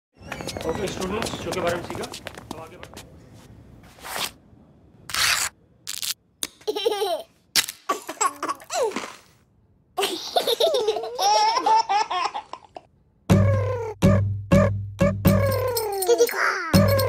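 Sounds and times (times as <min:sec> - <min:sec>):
babies laughing and squealing: 0:15.4 - 0:17.0.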